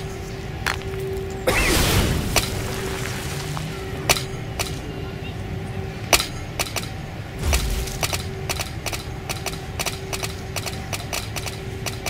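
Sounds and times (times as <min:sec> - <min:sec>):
steady low rumble: 0:00.0 - 0:12.0
sharp clicks and knocks: 0:06.1 - 0:12.0.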